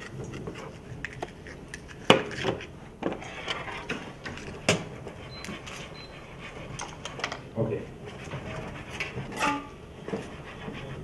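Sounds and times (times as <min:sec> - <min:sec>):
metal pans and utensils clattering: 0:08.3 - 0:09.8.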